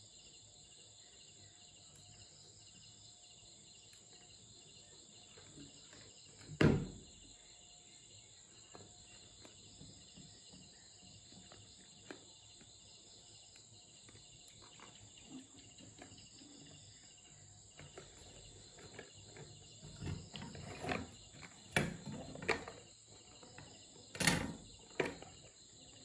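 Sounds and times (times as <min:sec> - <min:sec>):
insects chirring: 0:00.0 - 0:26.0
toy car clicking on wooden bench: 0:17.6 - 0:25.6.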